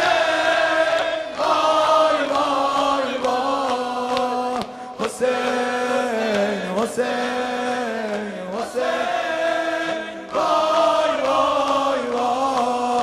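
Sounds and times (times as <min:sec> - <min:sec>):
man chanting a lament: 0:02.9 - 0:10.3, 0:11.7 - 0:13.0.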